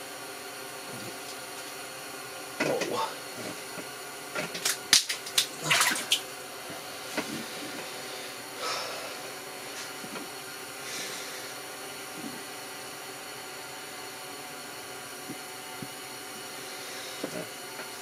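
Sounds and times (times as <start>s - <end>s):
steady hiss: 0.0s - 18.0s
water splashing: 5.6s - 6.2s.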